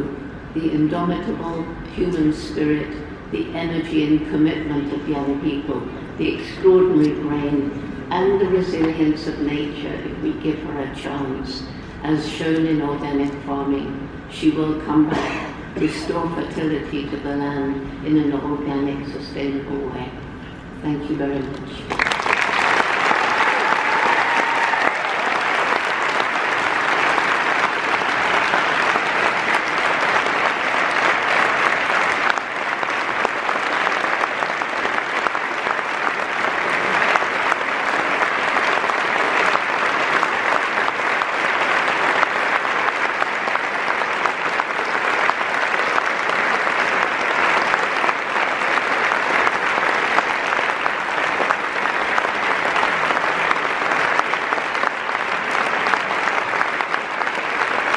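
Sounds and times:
large audience clapping: 0:21.9 - 0:57.9.

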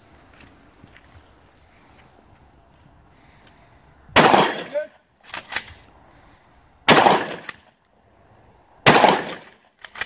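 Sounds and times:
loud gunshots: 0:04.2 - 0:04.9, 0:06.9 - 0:07.6, 0:08.8 - 0:09.5.

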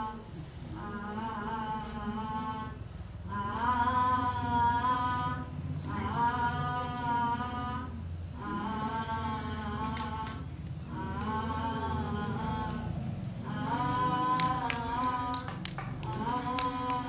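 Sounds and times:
woman singing without words: 0:00.0 - 0:17.0.

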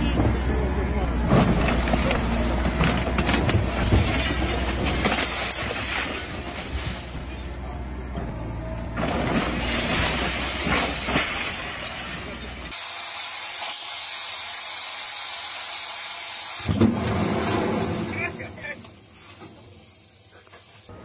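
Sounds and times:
excavator rumble: 0:00.0 - 0:12.8, 0:16.7 - 0:21.0
falling debris: 0:09.1 - 0:12.7, 0:16.7 - 0:19.9
walls cracking and crashing: 0:16.7 - 0:18.6
steady hiss: 0:18.6 - 0:20.9.

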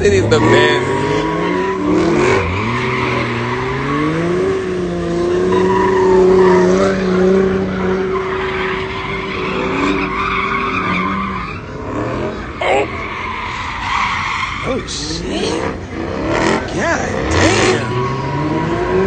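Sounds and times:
car engine revving: 0:00.0 - 0:19.0
tyres squealing on asphalt: 0:00.0 - 0:19.0.

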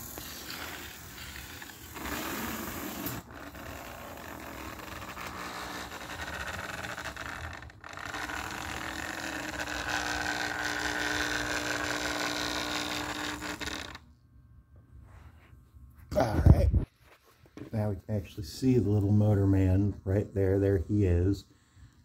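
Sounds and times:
toy trolley motor whirring: 0:00.0 - 0:14.0.

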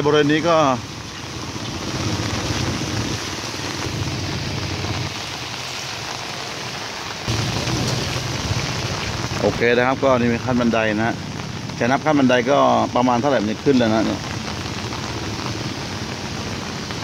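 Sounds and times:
heavy rain hissing: 0:00.0 - 0:17.0
low rumble: 0:07.3 - 0:13.0.

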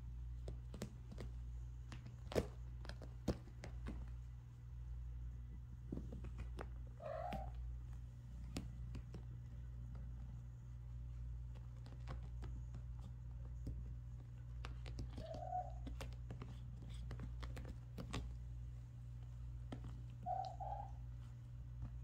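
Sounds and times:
steady low hum: 0:00.0 - 0:22.0
kitten claws scratching cushion: 0:00.3 - 0:04.7, 0:05.6 - 0:22.0.

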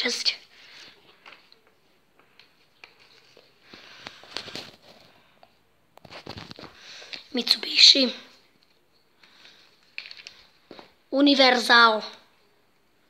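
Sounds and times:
paper rustling and tapping: 0:01.2 - 0:05.1.

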